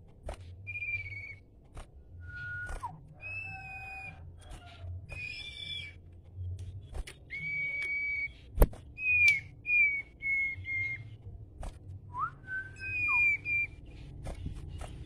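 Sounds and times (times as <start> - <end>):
sharp clicks: 0.0 - 3.4, 8.6 - 9.5
songbird whistling: 0.6 - 1.5, 2.2 - 6.5, 7.1 - 11.2, 12.1 - 14.5.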